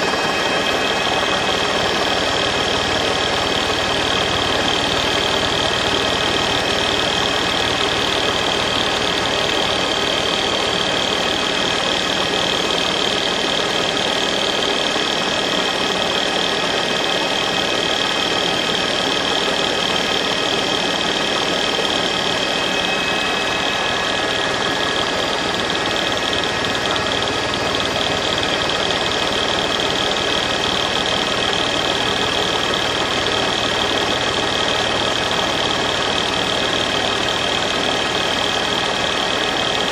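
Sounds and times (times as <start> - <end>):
engine hiss with high whine: 0.0 - 39.9.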